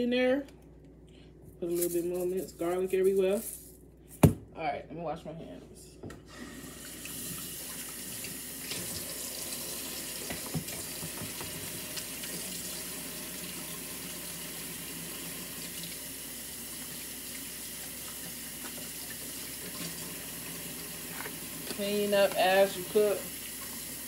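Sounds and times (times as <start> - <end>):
faucet running into sink: 6.5 - 24.0
hands washing under water: 17.1 - 20.2.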